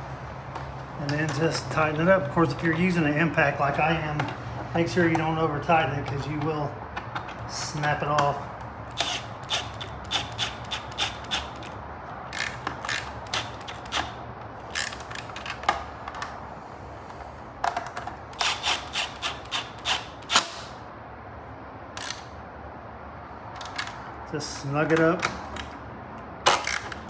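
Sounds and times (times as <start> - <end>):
wrench clicking: 8.9 - 15.4, 18.4 - 20.8, 22.0 - 22.4, 26.5 - 27.0.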